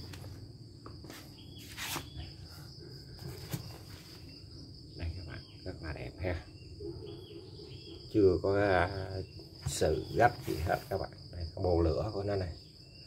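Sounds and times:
high-pitched insect trill: 0:00.0 - 0:13.0
knocks and rustles of straps: 0:03.2 - 0:04.3.

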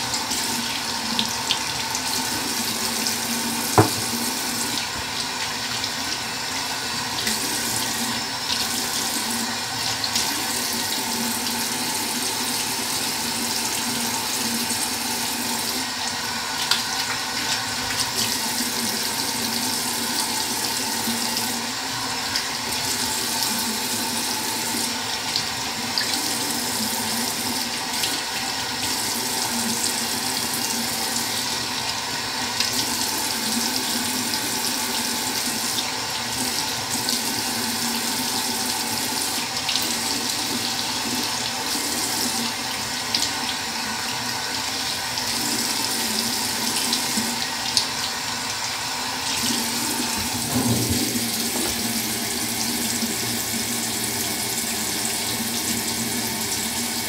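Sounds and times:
tap running into sink: 0:02.4 - 0:05.9, 0:49.3 - 0:56.9.

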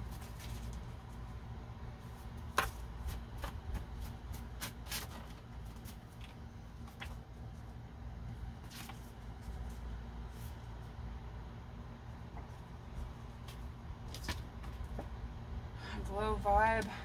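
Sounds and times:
cards shuffling: 0:08.6 - 0:10.5.

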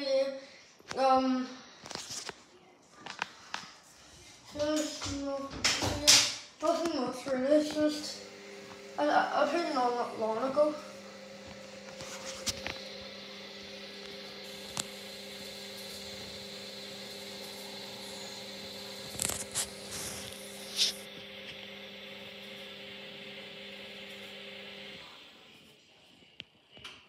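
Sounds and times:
washing machine motor hum: 0:07.4 - 0:25.6.

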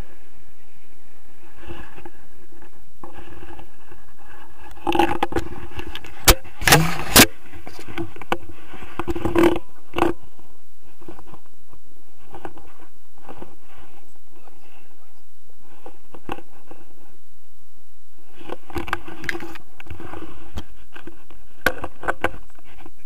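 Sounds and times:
sharp knocks on ground: 0:06.2 - 0:07.3.

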